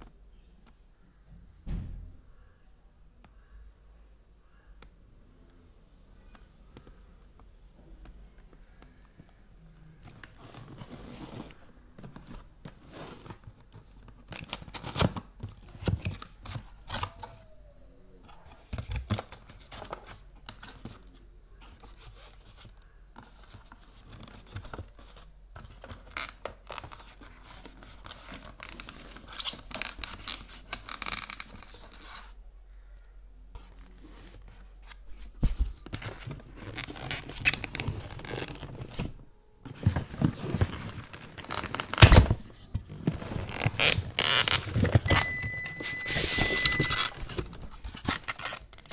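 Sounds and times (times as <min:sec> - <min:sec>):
cardboard rustling and scuffing: 0:33.9 - 0:48.1.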